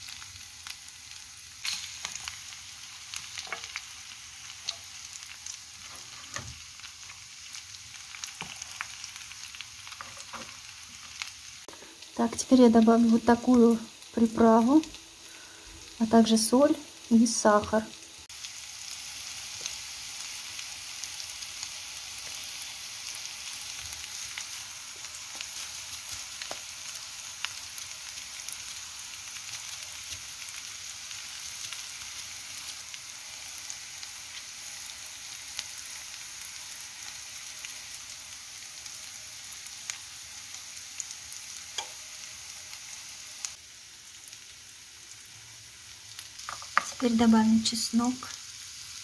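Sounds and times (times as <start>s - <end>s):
food sizzling in frying pan: 0.0s - 49.0s
fat crackling and popping: 46.2s - 48.4s.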